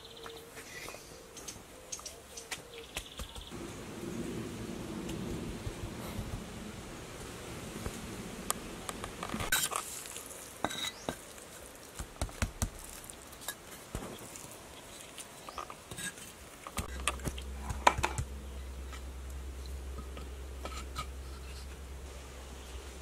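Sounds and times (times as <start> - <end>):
gritty scraping: 9.0 - 19.1, 19.7 - 22.1.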